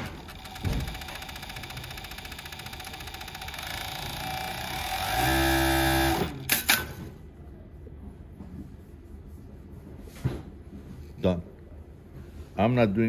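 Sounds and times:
industrial sewing machine running: 0.0 - 6.8.

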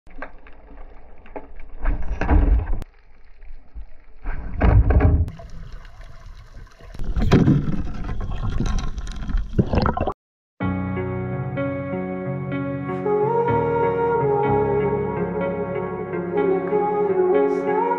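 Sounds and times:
water sloshing and splashing: 0.1 - 10.2
low surges of moving water: 5.3 - 7.2.

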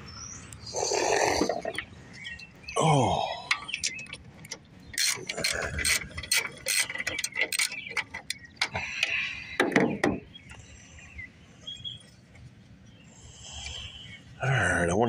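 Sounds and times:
socket ratchet clicking: 3.5 - 9.1.

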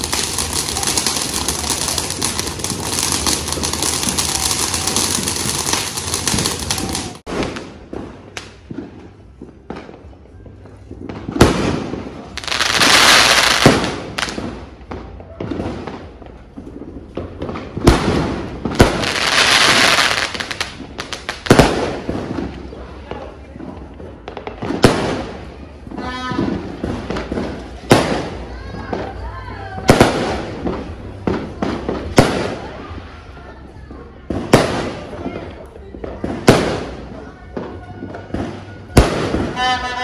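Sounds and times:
firework shells banging: 0.0 - 8.6
ground firework crackling: 0.0 - 40.0
loud firework crackling: 0.0 - 40.0.

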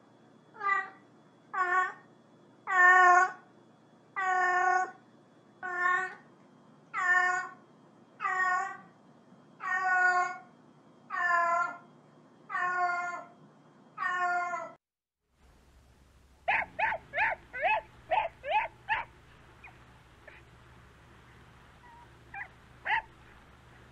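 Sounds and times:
cat meowing: 12.5 - 13.2, 14.0 - 14.8, 21.8 - 23.1
dog yipping: 16.5 - 20.4, 21.8 - 23.2.

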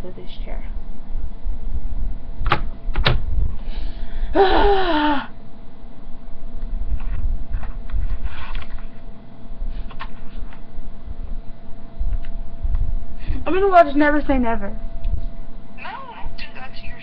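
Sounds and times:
young woman whimpering: 4.3 - 5.4.

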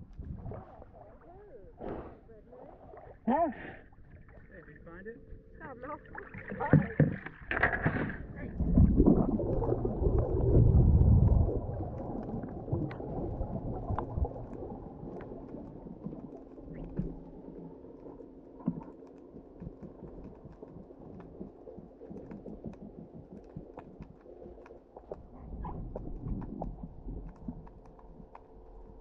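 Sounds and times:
underwater water churning rumble: 0.0 - 3.2, 5.9 - 29.0
muffled underwater hiss: 0.3 - 4.9
faint clicks: 13.8 - 29.0.

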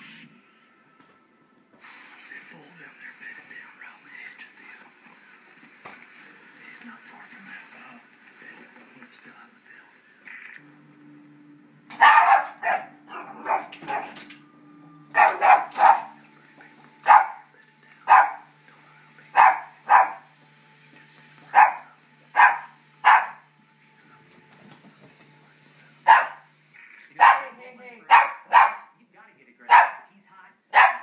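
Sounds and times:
small dog barking: 11.9 - 14.2, 15.2 - 16.2, 17.0 - 17.5, 18.1 - 18.5, 19.3 - 20.3, 21.5 - 23.5, 26.0 - 26.5, 27.2 - 29.0, 29.7 - 30.1, 30.7 - 31.0.

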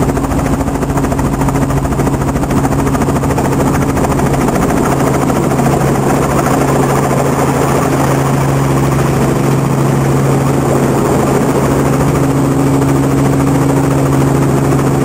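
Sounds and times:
helicopter engine and rotor: 0.0 - 15.0.

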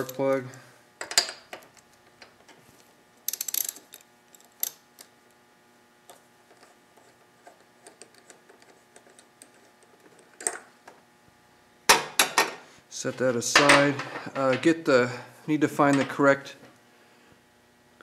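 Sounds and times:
socket wrench ratchet clicking: 3.3 - 4.0.

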